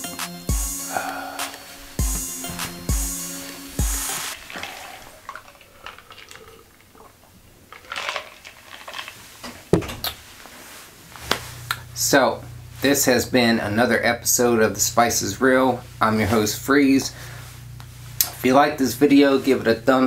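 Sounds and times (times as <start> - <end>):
hip-hop music: 0.0 - 4.4
man sipping and swallowing: 1.1 - 9.1.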